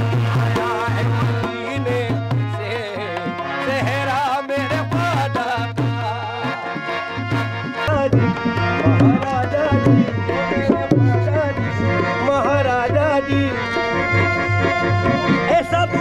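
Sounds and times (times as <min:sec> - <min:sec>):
harmonium chords: 0:00.0 - 0:16.0
man singing: 0:00.0 - 0:16.0
hand drum beat: 0:07.3 - 0:11.4.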